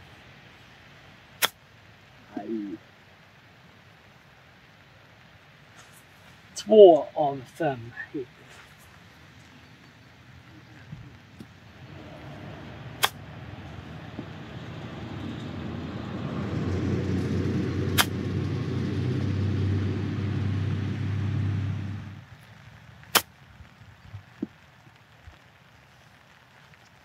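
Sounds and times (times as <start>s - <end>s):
low motor rumble: 9.4s - 22.3s
golf club striking ball: 11.9s - 14.6s, 17.8s - 18.4s.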